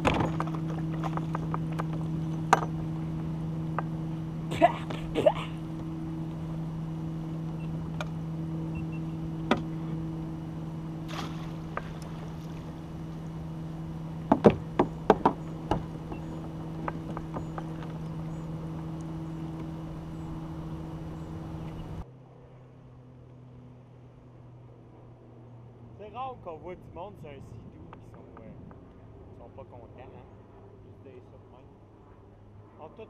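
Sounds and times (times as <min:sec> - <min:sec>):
small motor humming: 0:00.0 - 0:22.0
faint low hum: 0:00.0 - 0:33.0
gear knocking on hull: 0:11.1 - 0:22.0.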